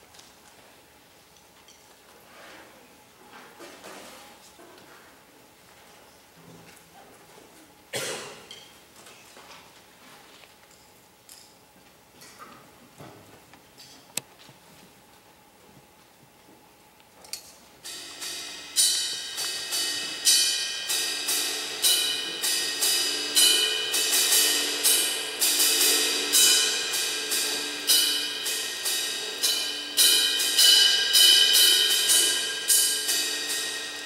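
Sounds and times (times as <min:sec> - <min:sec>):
metallic percussion hits: 0:17.8 - 0:34.0.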